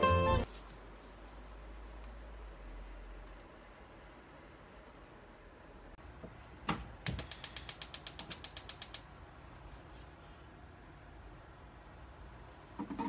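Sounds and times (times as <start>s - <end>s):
stove igniter clicking rapidly: 7.0s - 9.1s.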